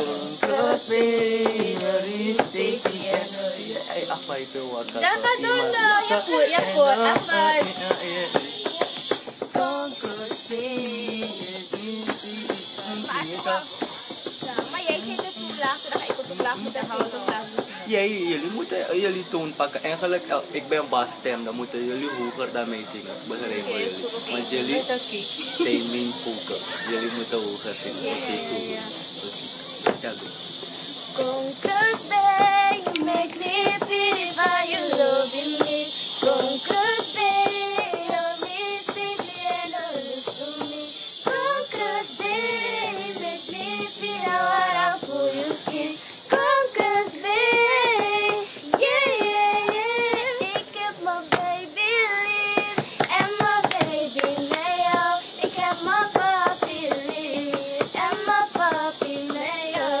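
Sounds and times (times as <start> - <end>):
woman singing: 0.0 - 4.0, 5.0 - 8.0, 9.5 - 13.6, 14.4 - 17.6, 28.0 - 29.0, 31.2 - 60.0
steady background hiss: 0.0 - 60.0
hands clapping: 4.8 - 17.7, 31.6 - 39.5, 51.3 - 51.6, 52.6 - 59.9.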